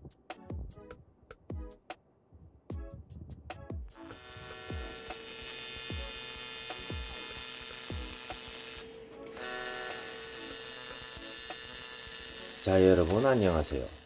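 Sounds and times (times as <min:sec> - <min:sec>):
faint music beat: 0:00.0 - 0:02.0, 0:02.7 - 0:11.7
welding arc buzzing: 0:04.0 - 0:14.0.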